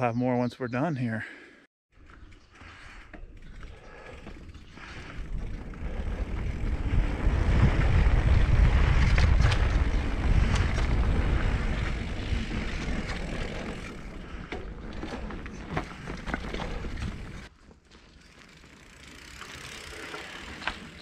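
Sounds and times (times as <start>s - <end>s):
bike clicks and rattles: 2.0s - 21.0s
tyres rolling over dirt: 3.4s - 21.0s
wind buffeting microphone: 4.8s - 14.5s.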